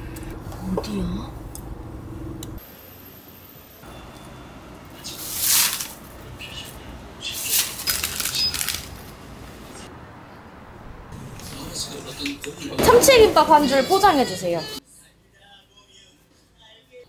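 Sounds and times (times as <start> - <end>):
car engine rumble: 0.0 - 2.7
paper bag rustling: 5.1 - 6.2, 7.3 - 9.1.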